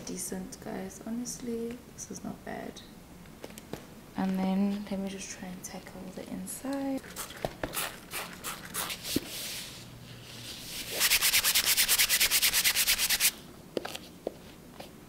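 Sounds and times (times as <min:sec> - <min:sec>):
scrubbing fabric lining: 0:10.6 - 0:13.3.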